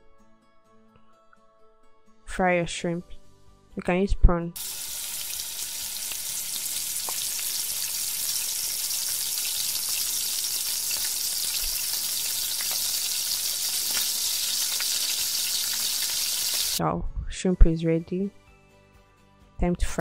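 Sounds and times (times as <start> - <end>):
shrimp sizzling in hot oil: 4.6 - 16.8.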